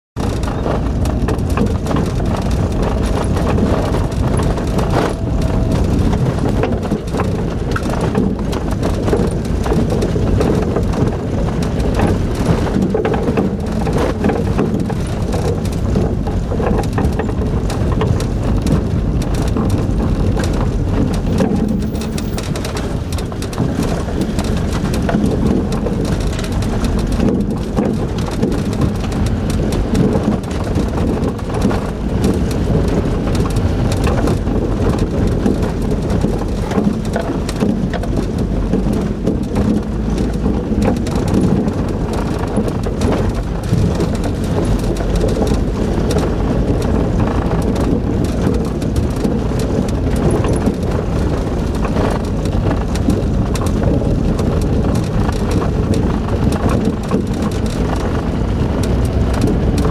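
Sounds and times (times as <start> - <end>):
rattles and knocks in cab: 0.2 - 59.9
truck engine and tyre rumble: 0.2 - 59.9.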